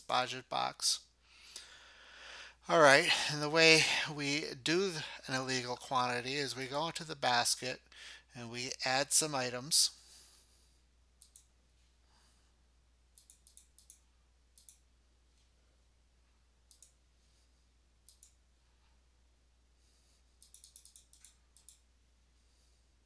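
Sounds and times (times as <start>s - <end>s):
computer clicks: 11.2s - 11.5s, 13.1s - 14.8s, 16.7s - 17.0s, 18.0s - 18.4s, 20.4s - 21.8s.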